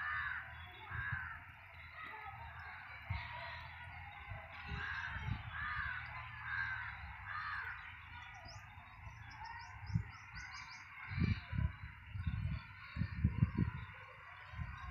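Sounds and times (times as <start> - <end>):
crow cawing: 0.0 - 1.4, 4.7 - 7.9
small birds chirping: 0.0 - 14.9.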